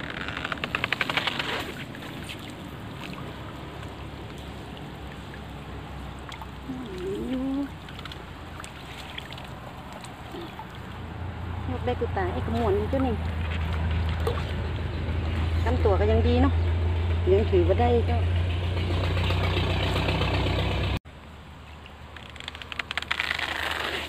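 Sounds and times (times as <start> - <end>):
water splashing and trickling: 0.5 - 16.4, 21.2 - 24.0.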